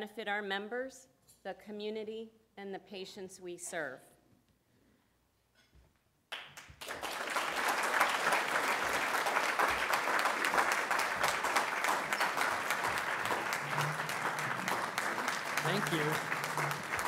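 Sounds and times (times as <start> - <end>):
audience applauding: 6.3 - 17.0.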